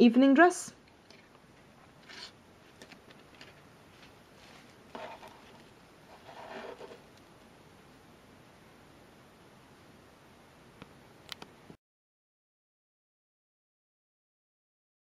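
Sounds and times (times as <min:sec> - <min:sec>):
fabric flowers rustling: 0:02.0 - 0:07.0.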